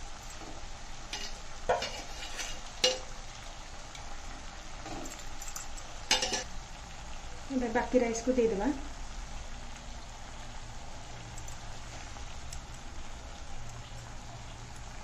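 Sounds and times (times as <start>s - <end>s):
pot sizzling: 0.0s - 15.0s
metal spoon scraping a pot: 1.1s - 3.0s, 4.9s - 6.5s.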